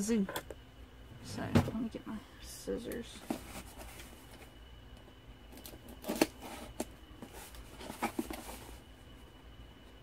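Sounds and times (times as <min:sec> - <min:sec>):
rummaging rustling: 0:03.1 - 0:04.5, 0:05.5 - 0:08.9.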